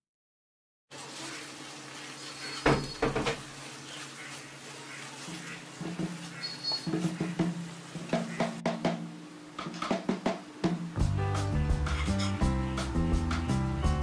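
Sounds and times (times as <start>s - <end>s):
faint sizzling: 0.9s - 8.4s
sharp knocks: 6.8s - 10.8s.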